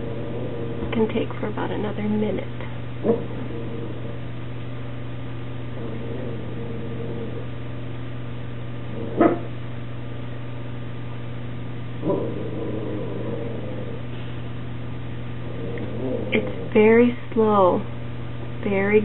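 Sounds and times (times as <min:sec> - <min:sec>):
steady low hum: 0:00.0 - 0:19.0
dog barking: 0:09.2 - 0:09.5.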